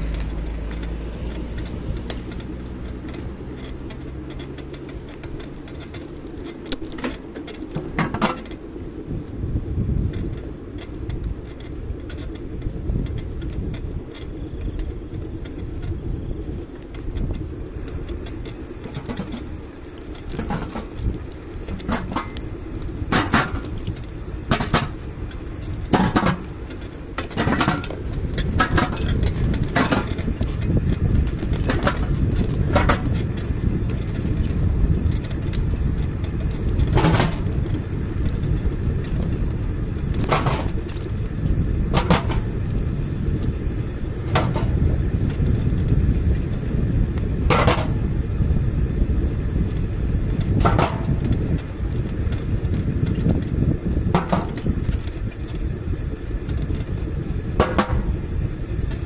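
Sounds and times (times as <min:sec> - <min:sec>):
sharp clicks and rattles: 0:00.0 - 0:59.0
wheels rolling on pavement: 0:00.0 - 0:59.0
wind buffeting microphone: 0:00.0 - 0:59.0.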